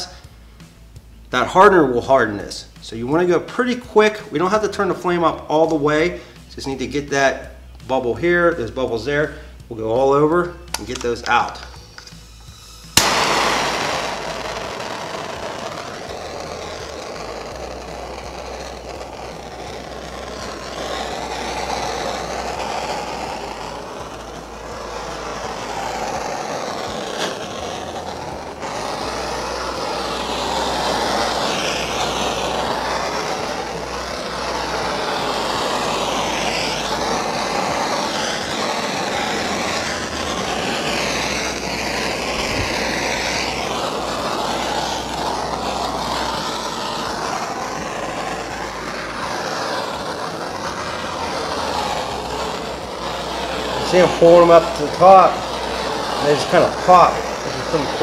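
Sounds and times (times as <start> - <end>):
gas torch flame hissing: 0.0 - 58.0.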